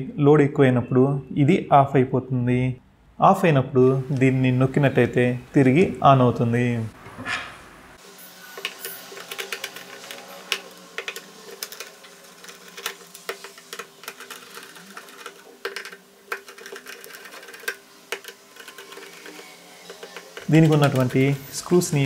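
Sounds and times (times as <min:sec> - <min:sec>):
screwdriver clicking and scraping screws: 0:08.6 - 0:21.2.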